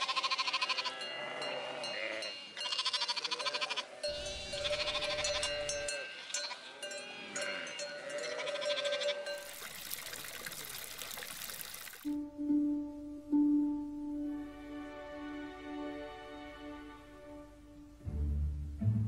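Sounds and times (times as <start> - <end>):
sheep bleating: 0.0 - 9.4
steady rushing hiss: 4.1 - 5.9.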